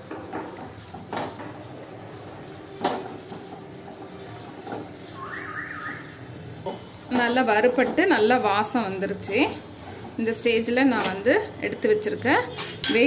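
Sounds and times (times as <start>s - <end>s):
low sizzle of frying flour: 0.0s - 13.0s.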